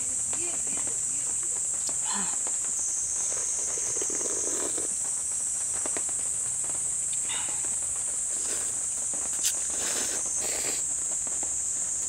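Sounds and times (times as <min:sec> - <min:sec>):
night insects chorus: 0:00.0 - 0:12.0
slurping noodles: 0:03.2 - 0:04.9, 0:08.3 - 0:08.8, 0:09.4 - 0:10.8
sipping broth from spoon: 0:09.4 - 0:10.8.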